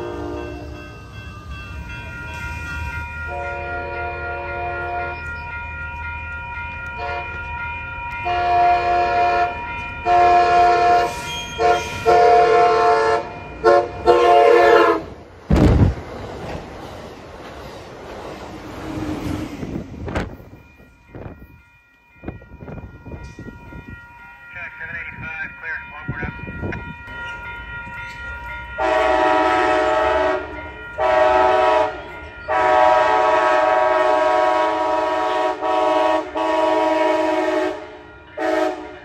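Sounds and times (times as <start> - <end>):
train horn blasts: 0.0 - 0.9, 3.3 - 5.4, 6.9 - 7.4, 8.2 - 15.2, 28.8 - 39.0
grade crossing bells ringing: 0.0 - 14.8, 19.7 - 35.1, 37.7 - 39.0
rush of wind from passing train: 0.0 - 39.0.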